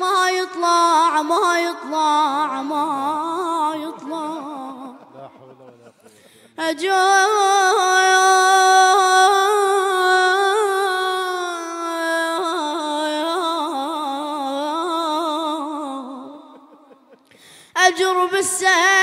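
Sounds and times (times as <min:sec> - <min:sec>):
boy singing a chant: 0:00.0 - 0:04.9, 0:06.6 - 0:16.3, 0:17.8 - 0:19.0.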